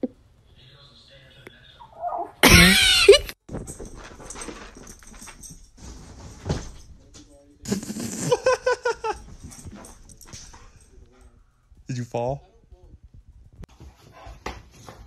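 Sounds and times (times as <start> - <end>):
dog whimpering yelps: 1.8 - 2.4.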